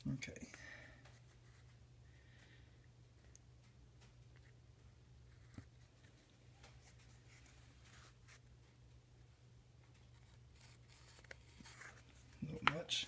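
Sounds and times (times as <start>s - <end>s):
faint scratching: 5.3s - 8.8s, 10.0s - 13.0s.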